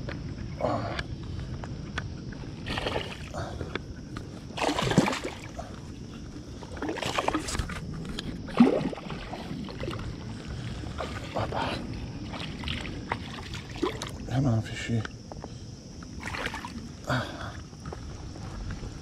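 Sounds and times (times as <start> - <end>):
steady low rumble: 0.0 - 4.6, 7.5 - 16.2
water swishing and splashing: 2.2 - 14.4, 16.0 - 19.0.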